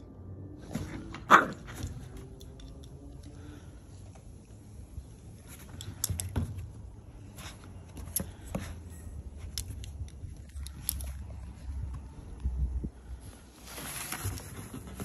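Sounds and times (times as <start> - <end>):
steady low rumble: 6.6 - 15.0.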